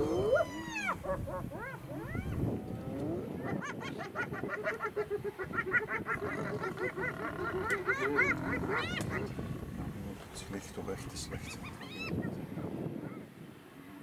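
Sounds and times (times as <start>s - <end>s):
hyenas giggling: 0.0s - 10.0s.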